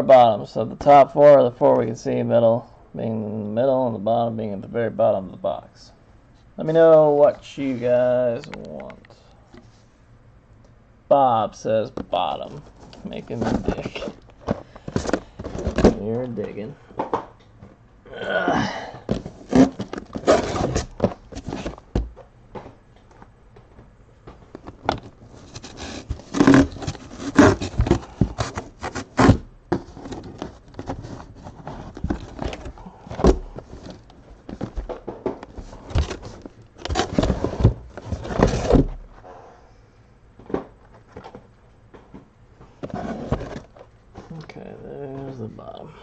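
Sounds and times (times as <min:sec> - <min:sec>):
boxes scraping and knocking: 0:11.9 - 0:16.8, 0:18.7 - 0:22.3, 0:24.3 - 0:39.2, 0:42.7 - 0:44.4.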